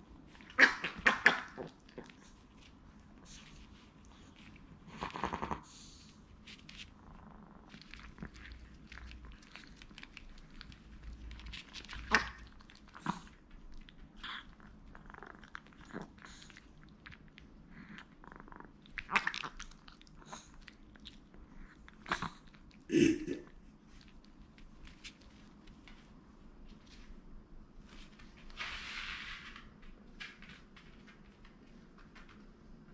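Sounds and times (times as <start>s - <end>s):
sharp clicks of paws: 0.2s - 22.7s, 23.8s - 32.9s
puppies scuffling: 24.1s - 32.9s.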